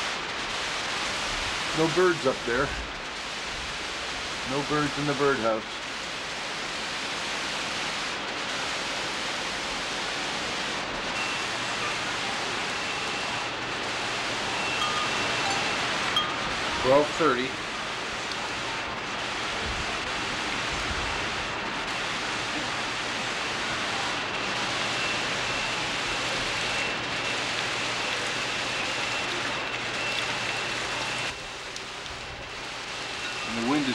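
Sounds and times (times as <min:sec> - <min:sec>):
heavy rain pouring: 0:00.0 - 0:33.9
wind in trees: 0:12.8 - 0:16.9.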